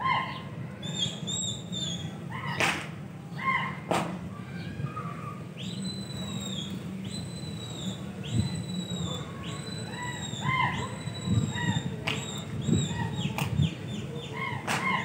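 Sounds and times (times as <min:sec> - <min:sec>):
low background hum: 0:00.0 - 0:15.0
sparrows chirping: 0:00.1 - 0:02.2, 0:04.6 - 0:15.0
whistled bird notes: 0:00.8 - 0:02.2, 0:05.6 - 0:14.4.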